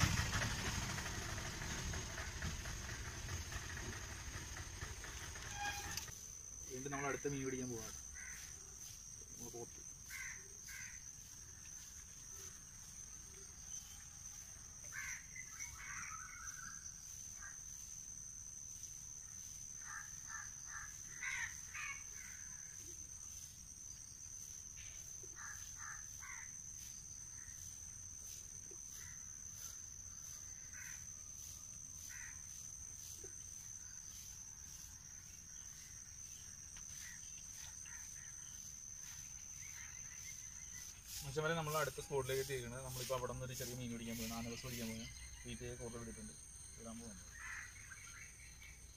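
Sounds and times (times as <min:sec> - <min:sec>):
high insect drone: 0:00.0 - 0:48.9
birds calling: 0:14.9 - 0:17.6, 0:35.6 - 0:45.8.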